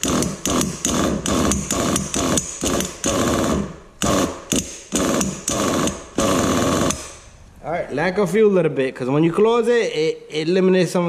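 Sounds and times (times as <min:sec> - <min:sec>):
pull starter cranking engine: 0:00.0 - 0:07.2.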